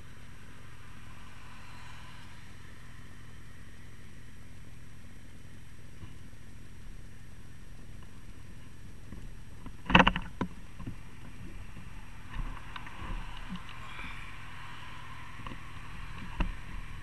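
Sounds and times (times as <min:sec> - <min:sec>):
car passing: 0:00.0 - 0:05.2, 0:09.9 - 0:17.0
steady low rumble: 0:00.0 - 0:17.0.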